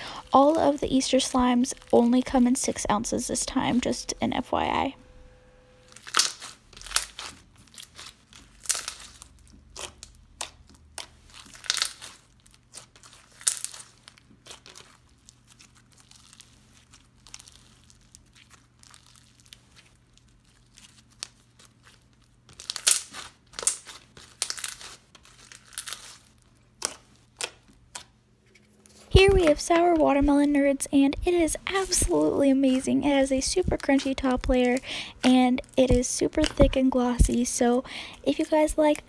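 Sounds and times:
slime crackling and popping: 0:00.0 - 0:04.3, 0:05.9 - 0:28.2, 0:28.8 - 0:39.0.

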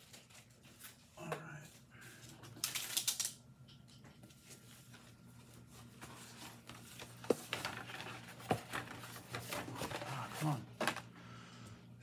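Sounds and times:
packaging rustling: 0:02.5 - 0:03.4, 0:04.5 - 0:11.1.

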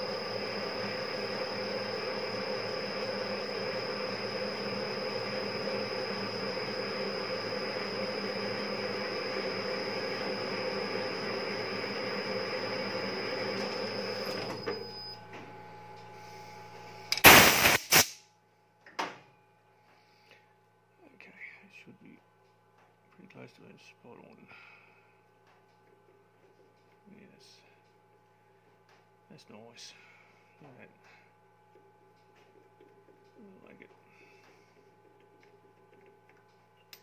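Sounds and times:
lathe whine and hum: 0:00.0 - 0:17.8.

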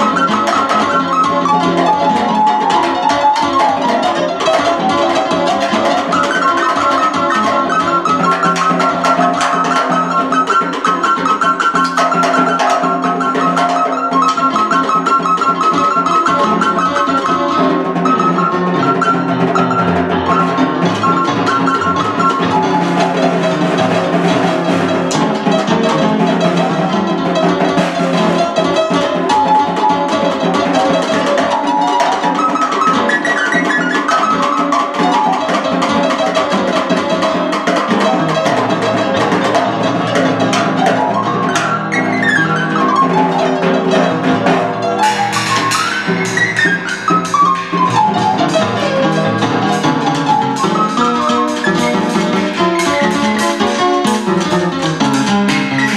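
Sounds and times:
electronic keyboard melody: 0:00.0 - 0:55.9
snare drum strokes: 0:00.0 - 0:55.9
snare drum and cymbal: 0:42.1 - 0:55.9.

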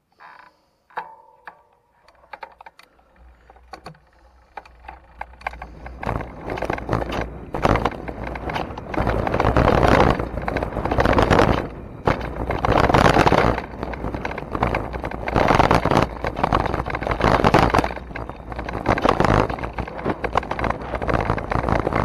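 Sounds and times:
bike rattling over dirt trail: 0:02.2 - 0:22.0
wind buffeting microphone: 0:05.7 - 0:22.0.

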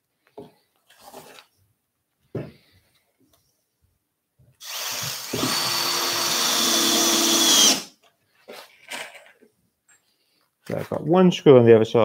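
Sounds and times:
cordless drill driving a screw: 0:04.6 - 0:08.0.

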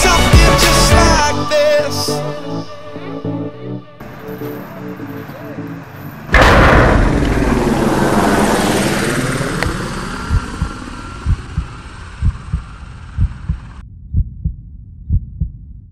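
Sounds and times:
low double thump: 0:06.3 - 0:15.8
deep boom: 0:06.3 - 0:15.9.

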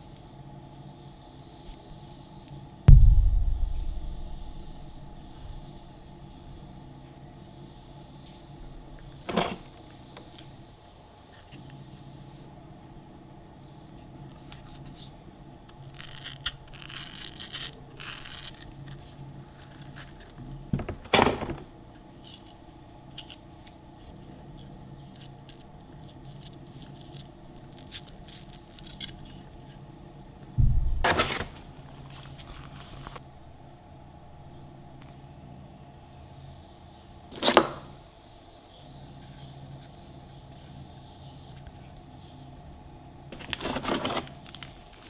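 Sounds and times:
plastic parts scraping and rattling: 0:22.2 - 0:29.8, 0:43.3 - 0:45.0.

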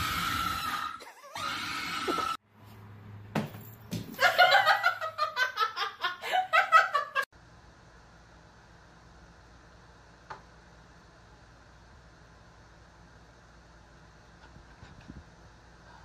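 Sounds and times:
person laughing hard: 0:04.2 - 0:07.3.

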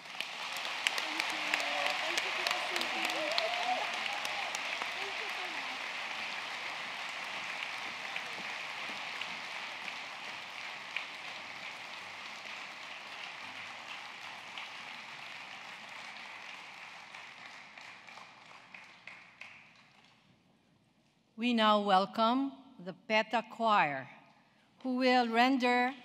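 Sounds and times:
audience applauding: 0:00.0 - 0:20.2.

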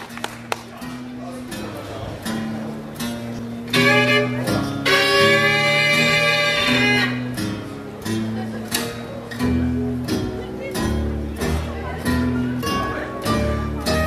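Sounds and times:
bluegrass band playing: 0:00.0 - 0:14.0
fiddle long held notes: 0:03.7 - 0:07.4.

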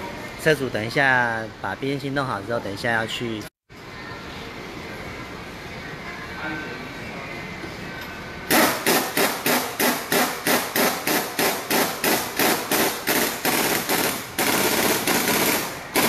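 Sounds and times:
impact wrench rattling: 0:08.5 - 0:16.0.

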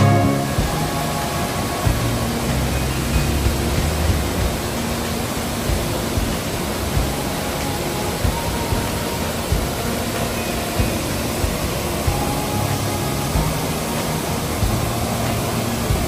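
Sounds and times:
faint music: 0:00.0 - 0:16.0
waterfall rushing: 0:00.0 - 0:16.0.

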